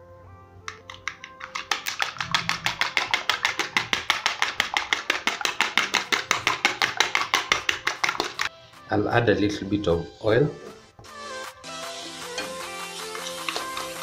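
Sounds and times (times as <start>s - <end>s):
fork beating egg in plastic bowl: 0.7s - 8.5s.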